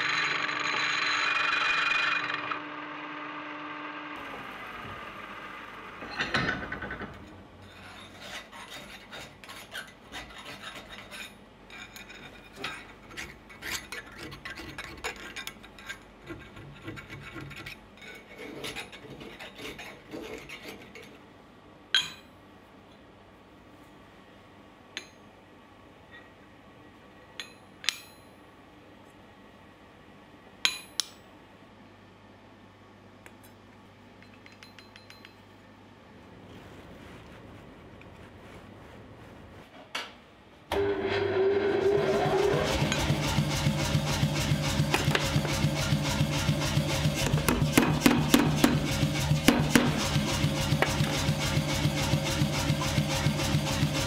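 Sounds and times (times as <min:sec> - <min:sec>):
file rasping on steel: 0:07.7 - 0:12.4, 0:16.2 - 0:21.1.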